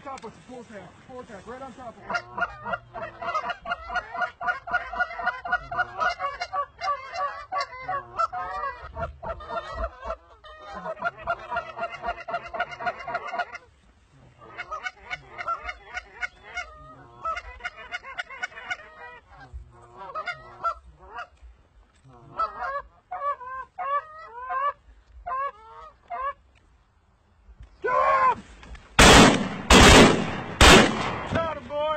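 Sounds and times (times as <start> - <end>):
geese honking: 1.4 - 21.4, 22.1 - 26.4.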